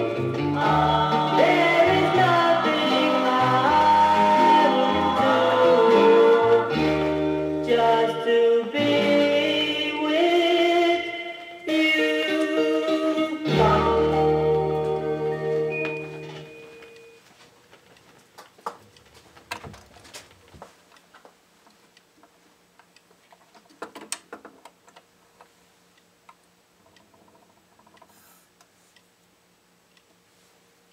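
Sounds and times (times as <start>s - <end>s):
doo-wop record playing: 0.0s - 16.8s
record surface noise: 14.1s - 30.9s.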